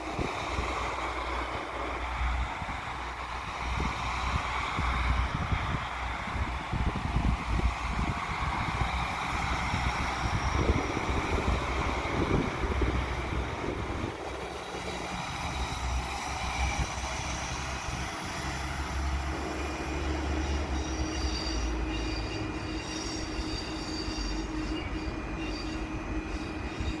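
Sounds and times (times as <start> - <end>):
train rumbling: 0.0 - 27.0
wheel squeal: 18.4 - 27.0.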